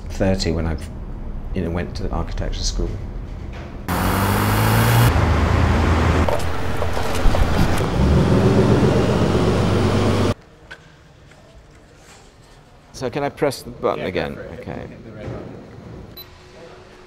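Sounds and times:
buses and cars passing: 0:03.9 - 0:10.4
car engine and tyre noise: 0:03.9 - 0:10.4.

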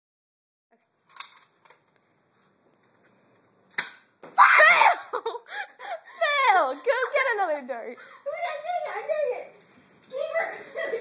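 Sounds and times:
plastic clicks of toy blaster: 0:01.1 - 0:01.8, 0:03.7 - 0:04.0
sharp snap: 0:03.7 - 0:04.1.

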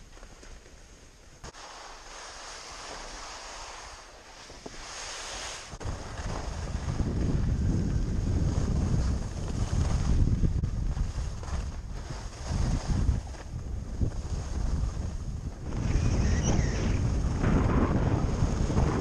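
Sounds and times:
skis scraping over snow: 0:00.0 - 0:19.0
wind buffeting microphone: 0:05.7 - 0:19.0.

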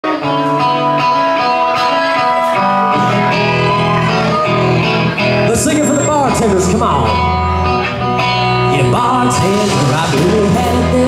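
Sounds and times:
drums: 0:00.0 - 0:11.0
electric guitars: 0:00.0 - 0:11.0
bass notes: 0:02.8 - 0:11.0.

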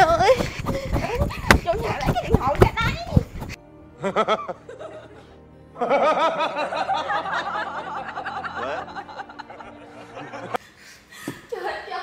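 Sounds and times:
man laughing: 0:04.0 - 0:05.1.

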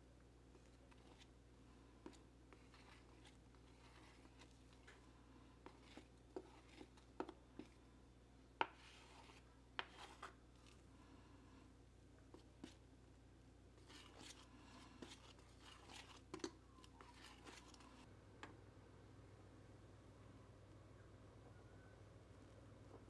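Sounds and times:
spoon stirring batter: 0:00.4 - 0:18.1.

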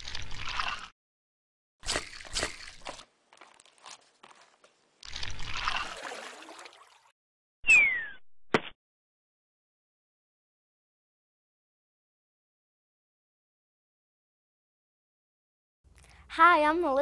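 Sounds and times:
liquid splashing: 0:05.0 - 0:07.1.

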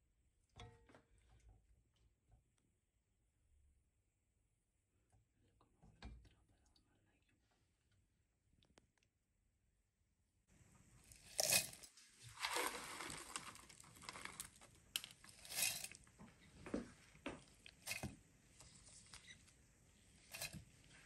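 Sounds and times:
fried onions rustling into a jar: 0:11.1 - 0:16.0.

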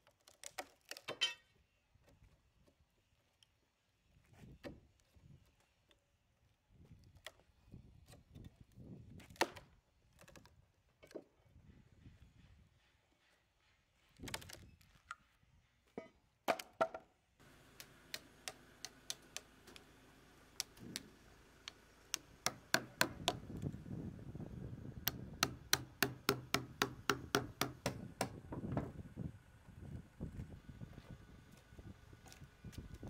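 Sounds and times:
hammer striking steel chisel: 0:22.1 - 0:23.4, 0:25.1 - 0:28.4.

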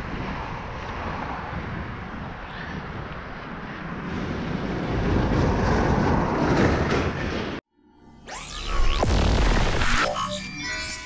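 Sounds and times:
wind on microphone: 0:00.0 - 0:07.6
road traffic: 0:00.0 - 0:07.7.

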